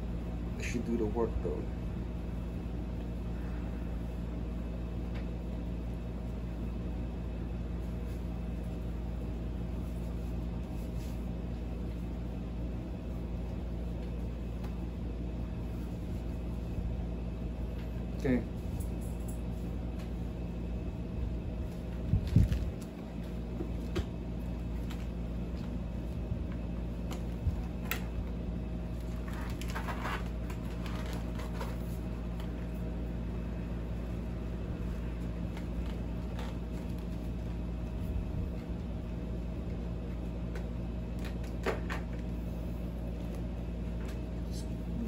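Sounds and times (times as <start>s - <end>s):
steady low hum: 0.0s - 45.0s
helmet rustling and scraping: 7.8s - 12.3s, 28.8s - 33.2s.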